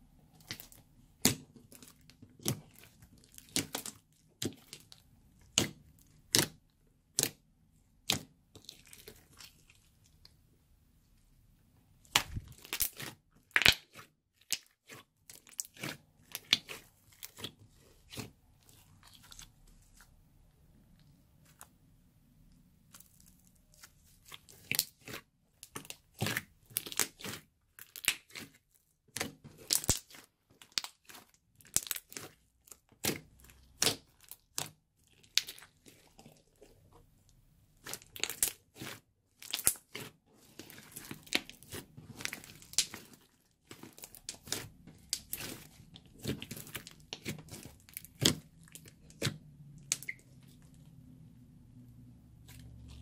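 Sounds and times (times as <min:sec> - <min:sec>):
slime popping and crackling: 0:00.4 - 0:07.4, 0:12.0 - 0:19.5, 0:22.9 - 0:36.6, 0:37.8 - 0:50.8.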